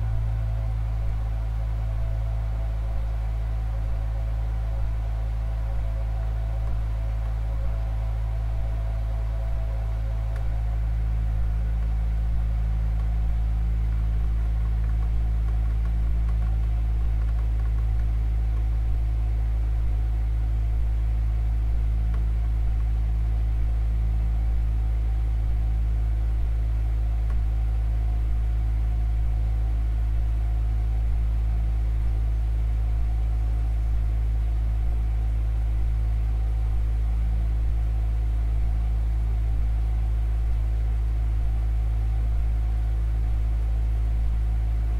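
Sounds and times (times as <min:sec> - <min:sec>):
loud low drone: 0:00.0 - 0:44.9.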